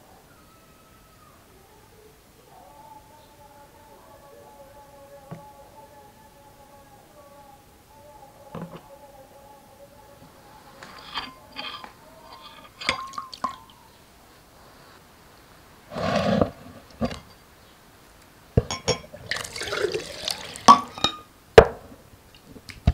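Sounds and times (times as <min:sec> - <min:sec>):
spoon clinking glass bowl: 0:11.0 - 0:13.8, 0:18.7 - 0:21.3
juice pouring and splashing: 0:19.1 - 0:20.9.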